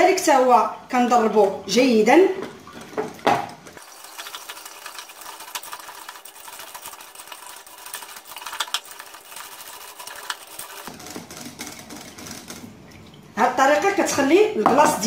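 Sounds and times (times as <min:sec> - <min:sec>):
whisk clicking against bowl: 0:04.1 - 0:12.6.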